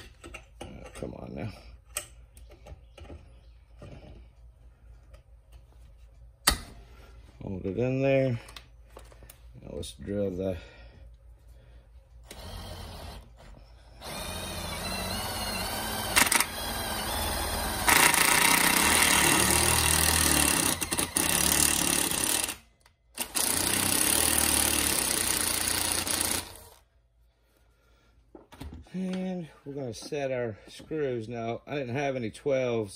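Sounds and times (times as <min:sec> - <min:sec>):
impact driver drilling into metal: 0:12.3 - 0:13.4, 0:14.0 - 0:26.8.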